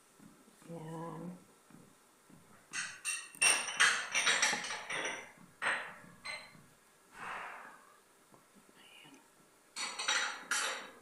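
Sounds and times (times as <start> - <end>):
utensil clinking against metal pot: 2.7 - 6.5, 9.8 - 11.0.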